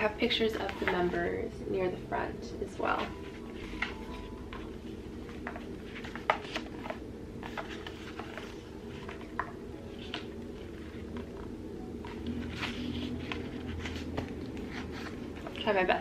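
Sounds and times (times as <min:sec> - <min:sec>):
paper pages turning: 0:03.0 - 0:15.7.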